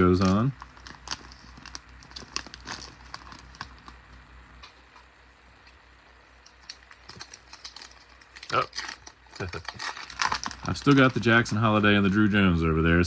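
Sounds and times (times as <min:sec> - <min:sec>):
foil wrapper crinkling: 0:00.0 - 0:04.2, 0:06.4 - 0:12.3.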